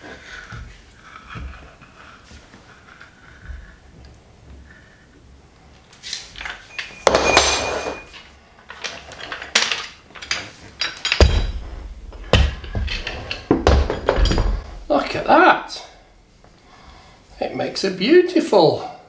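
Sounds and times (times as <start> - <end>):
metal clanks and knocks: 8.7 - 16.2
heavy thumps: 10.8 - 17.2.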